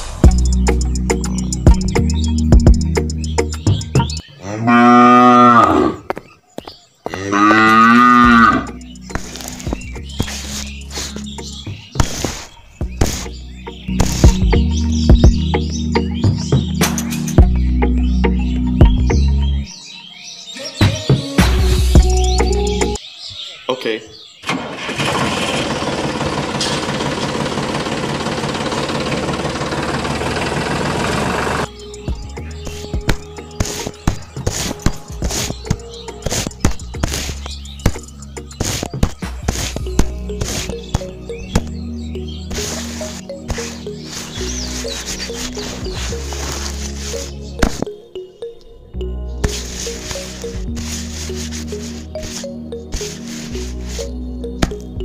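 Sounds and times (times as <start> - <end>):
cow mooing: 4.4 - 6.1, 7.1 - 8.8
tractor engine idling: 24.5 - 32.7.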